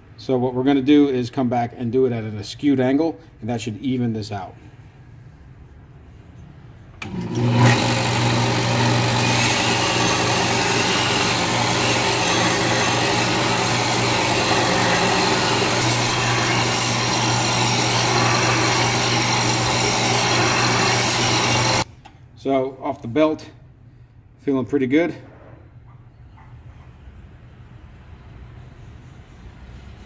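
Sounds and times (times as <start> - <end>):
belt sander humming: 7.0 - 21.9
cleaver grinding on sanding belt: 7.4 - 21.8.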